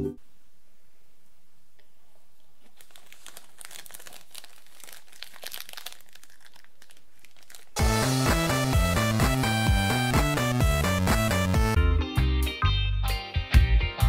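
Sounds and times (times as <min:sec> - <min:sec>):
wrapper crinkling: 0:02.1 - 0:07.8.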